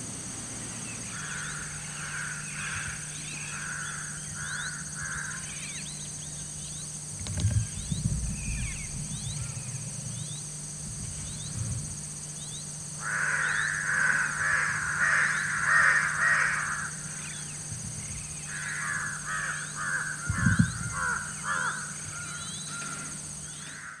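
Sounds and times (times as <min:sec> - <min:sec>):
steady low hum: 0:00.0 - 0:24.0
faint bird chirps: 0:00.7 - 0:14.4, 0:15.1 - 0:24.0
crows cawing: 0:01.0 - 0:05.8, 0:13.0 - 0:17.5, 0:18.4 - 0:24.0
low thumps: 0:07.1 - 0:12.3.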